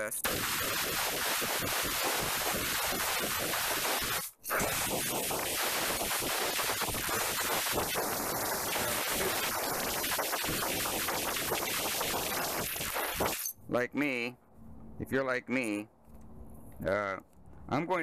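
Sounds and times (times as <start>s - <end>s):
compressed air hissing: 0.2s - 13.5s.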